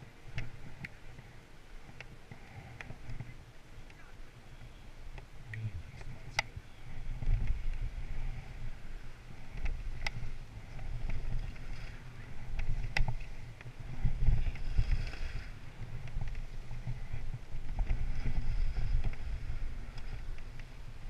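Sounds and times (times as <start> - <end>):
wind buffeting microphone: 0.0 - 21.0
skis sliding on snow: 5.7 - 21.0.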